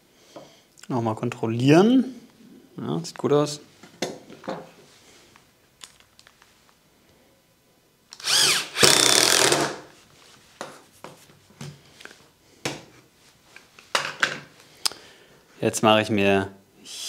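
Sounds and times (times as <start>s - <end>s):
drill driving a screw into wood: 8.2s - 9.9s.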